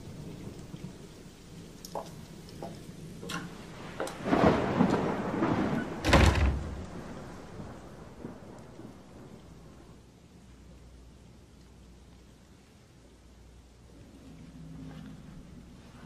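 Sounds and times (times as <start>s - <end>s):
thunder rumble and clap: 0.0s - 10.0s
rain: 0.0s - 16.0s.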